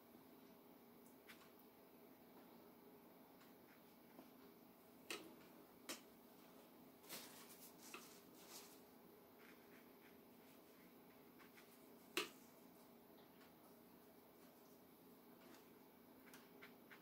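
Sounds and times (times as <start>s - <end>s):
faint steady hum: 0.0s - 17.0s
faint clicks and taps: 3.3s - 6.1s, 11.1s - 12.5s, 14.4s - 17.0s.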